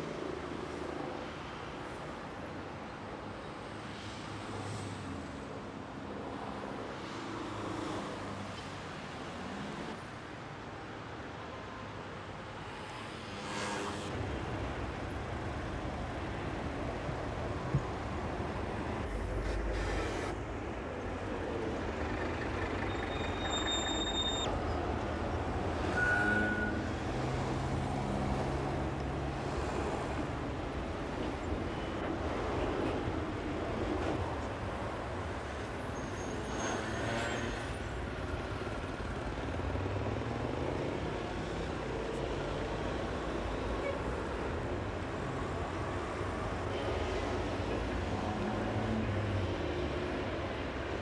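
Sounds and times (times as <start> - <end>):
road traffic: 0.0 - 51.0
brief high squeals: 22.8 - 24.5, 25.9 - 26.8.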